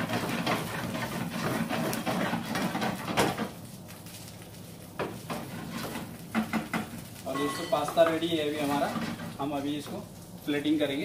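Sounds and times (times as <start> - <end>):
wooden spatula scraping pan: 0.0 - 3.6, 5.0 - 10.0
pasta sizzling in frying pan: 0.0 - 11.0.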